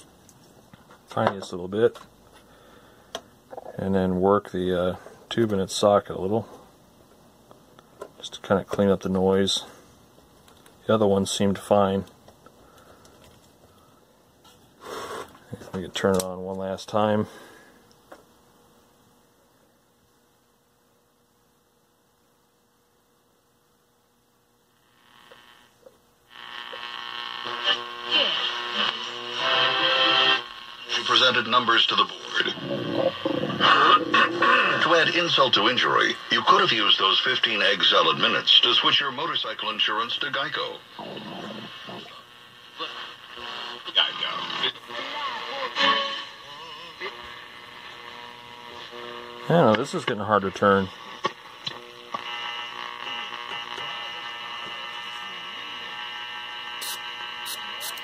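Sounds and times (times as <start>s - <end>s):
faint radio hum: 0.0s - 23.9s, 24.6s - 58.0s
radio station audio: 0.9s - 6.7s, 26.3s - 58.0s
voice from radio speaker: 30.8s - 47.4s.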